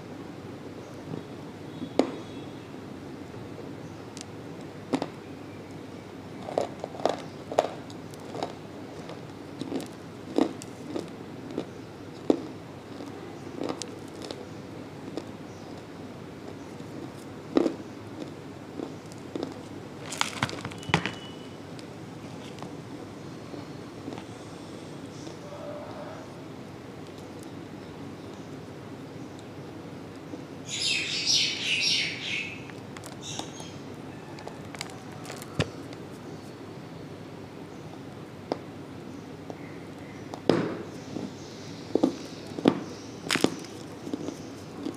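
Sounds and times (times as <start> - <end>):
dry clay being chewed: 6.4 - 14.4, 15.0 - 15.9, 16.7 - 20.4, 34.4 - 35.6, 43.3 - 44.9
clay crunching in mouth: 43.3 - 44.9.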